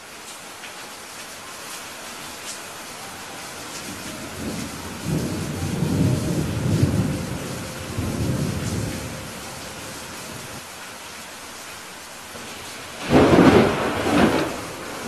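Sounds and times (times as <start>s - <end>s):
rain falling: 0.0s - 15.0s
low thunder rolling: 3.8s - 10.6s, 12.4s - 15.0s.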